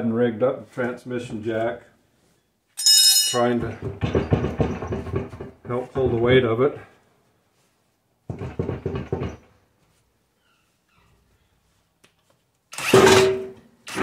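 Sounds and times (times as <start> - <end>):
impact wrench driving a screw: 12.7 - 14.0.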